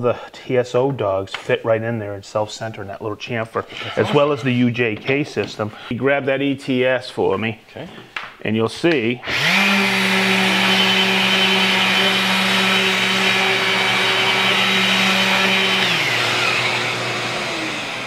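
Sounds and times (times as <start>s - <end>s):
orbital sander running: 9.2s - 18.0s
sander spinning down: 9.2s - 18.0s.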